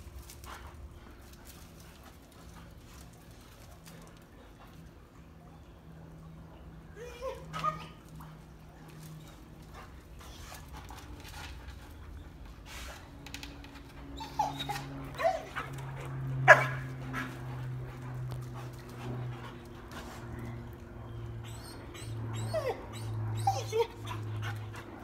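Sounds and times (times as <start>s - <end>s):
dogs whimpering and yipping: 6.9s - 10.8s, 11.9s - 18.4s, 19.0s - 25.0s.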